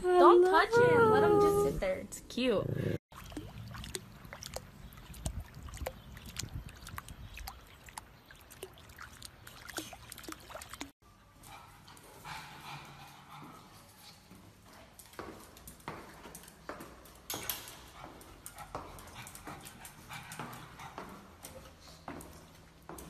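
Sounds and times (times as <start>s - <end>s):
puppy paws splashing water: 3.1s - 11.0s.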